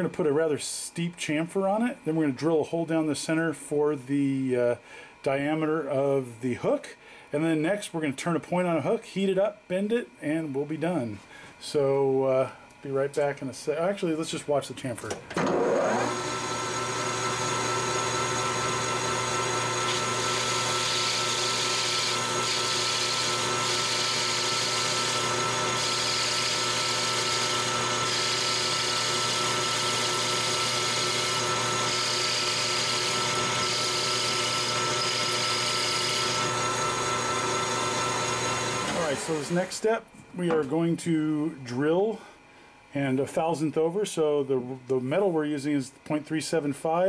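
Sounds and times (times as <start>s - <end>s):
metal lathe whine: 15.3s - 39.8s.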